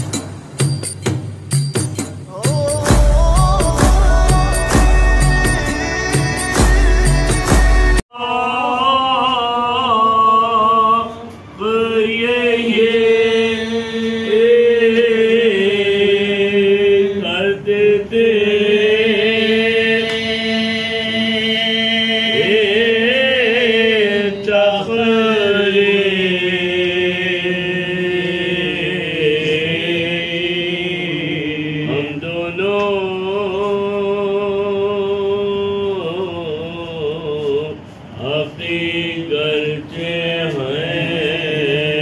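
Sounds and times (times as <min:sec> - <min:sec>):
intro music: 0:02.3 - 0:08.0
men chanting: 0:02.3 - 0:42.0.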